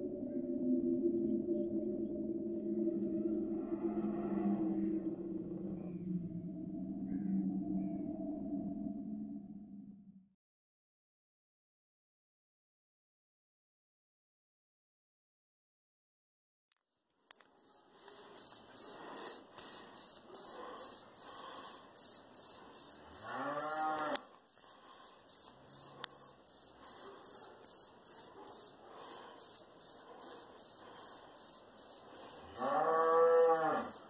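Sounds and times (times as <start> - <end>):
crickets chirping: 17.2 - 34.0
cow mooing: 23.2 - 24.3, 32.4 - 34.0.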